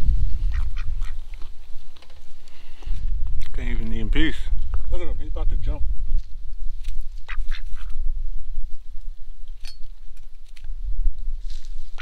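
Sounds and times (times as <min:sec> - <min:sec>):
wind buffeting microphone: 0:00.0 - 0:12.0
duck quacking: 0:00.5 - 0:01.2, 0:07.3 - 0:07.9.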